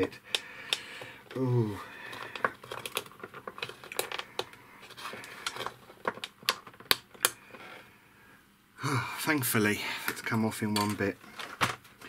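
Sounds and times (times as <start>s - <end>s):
small plastic clicks and taps: 0.1s - 0.9s.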